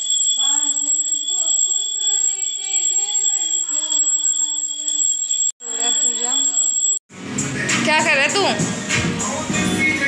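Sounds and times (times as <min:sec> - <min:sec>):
high bell-like ringing: 0:00.0 - 0:07.0.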